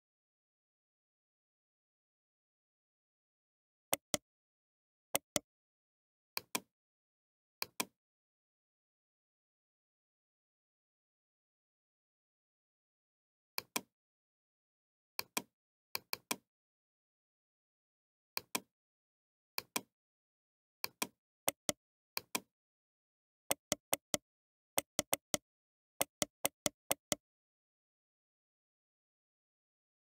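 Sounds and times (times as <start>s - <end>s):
computer mouse button clicking: 4.0s - 4.2s, 24.8s - 25.4s.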